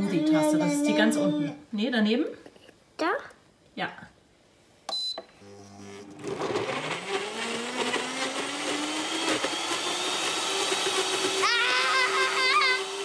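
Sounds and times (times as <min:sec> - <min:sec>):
high voice: 0:00.0 - 0:01.6, 0:11.4 - 0:13.0
blender motor running: 0:05.4 - 0:13.0.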